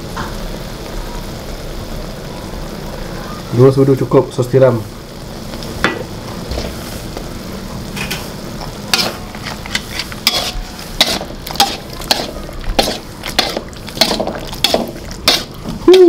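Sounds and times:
meat and mushrooms sizzling in a wok: 0.0 - 16.0
metal spatula scraping a wok: 8.9 - 15.6.

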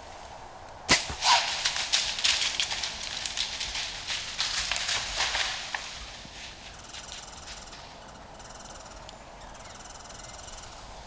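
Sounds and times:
sharp crack: 0.9 - 6.5
deer running through dry leaves: 1.2 - 8.0.

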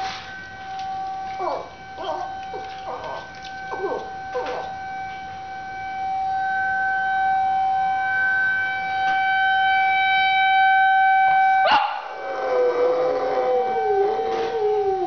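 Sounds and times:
tornado warning siren: 0.0 - 15.0
dog whining: 1.3 - 4.8
dog yipping: 1.4 - 4.8, 11.7 - 12.0.

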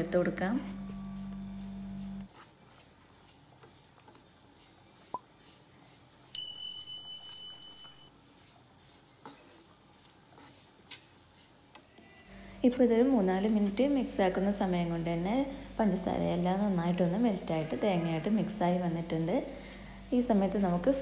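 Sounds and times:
wooden spoon scraping a pan: 1.0 - 11.9
high electronic beep: 6.4 - 8.1.

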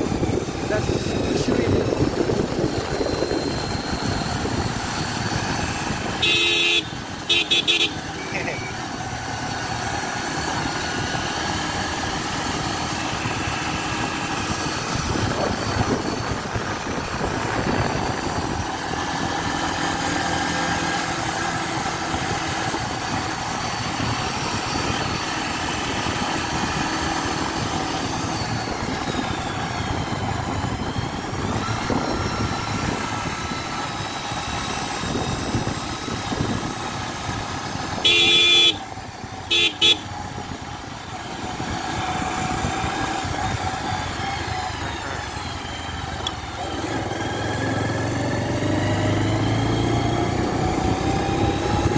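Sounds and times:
road and wind noise: 0.0 - 51.9
vehicle engine running: 0.0 - 51.9
car horn toot: 6.0 - 8.7, 37.9 - 38.9, 39.5 - 40.2.

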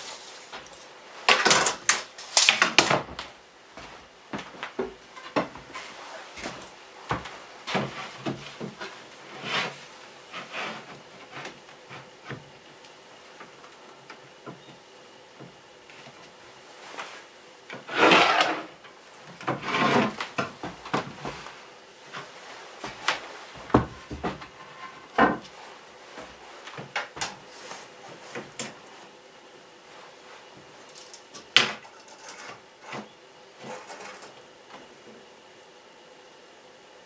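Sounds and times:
wooden board scraping on wood: 5.2 - 12.1, 17.8 - 18.8, 19.4 - 21.5.

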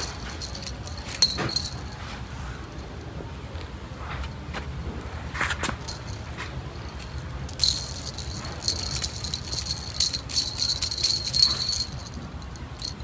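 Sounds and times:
small jingle bells jingling: 0.0 - 2.2, 5.8 - 13.0.

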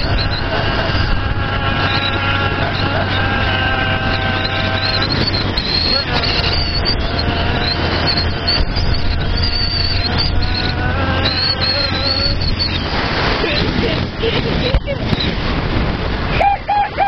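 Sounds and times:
motorcycle engine running: 0.0 - 12.9
wind rushing: 0.0 - 17.0.

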